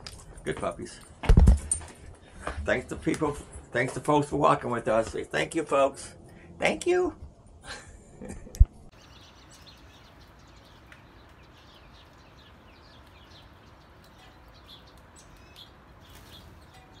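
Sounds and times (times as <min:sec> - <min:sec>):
small birds chirping: 0:08.9 - 0:17.0.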